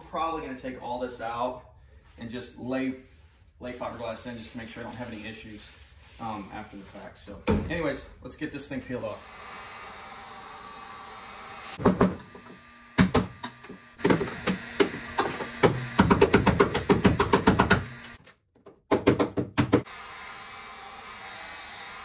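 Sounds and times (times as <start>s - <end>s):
heat gun blowing: 9.1s - 18.2s.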